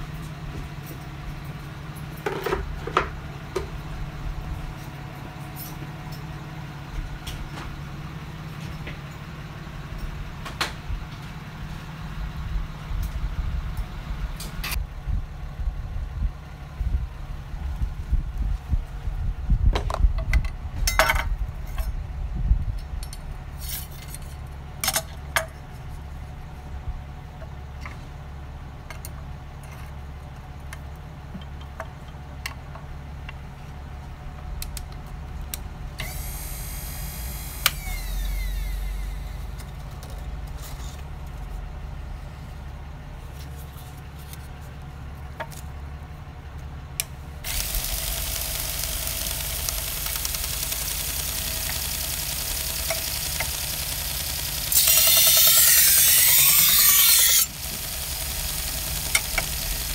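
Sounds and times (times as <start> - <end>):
steady low hum: 0.0 - 59.9
whir falling in pitch: 36.0 - 39.6
metal clicks and clatter: 47.5 - 56.7
sharpening belt hissing: 54.7 - 58.0.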